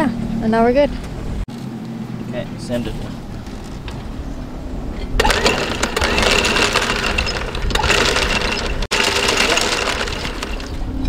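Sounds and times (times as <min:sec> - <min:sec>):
anchor chain rattling: 0:05.2 - 0:11.0.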